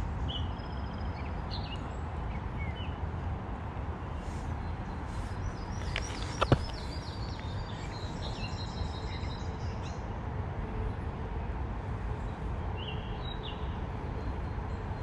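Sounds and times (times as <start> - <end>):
small birds chirping: 4.3 - 10.1.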